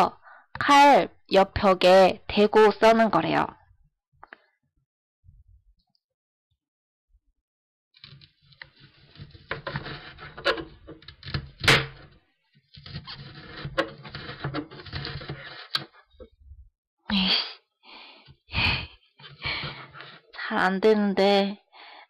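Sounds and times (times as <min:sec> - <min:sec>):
knife cutting on plastic board: 0:08.6 - 0:12.1, 0:12.8 - 0:15.9.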